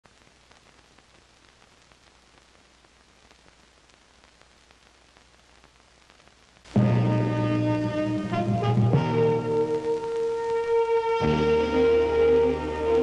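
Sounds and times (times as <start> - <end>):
crackling clicks: 0.0 - 6.8, 9.6 - 11.1
film soundtrack hiss: 0.0 - 13.0
loud music: 6.8 - 13.0.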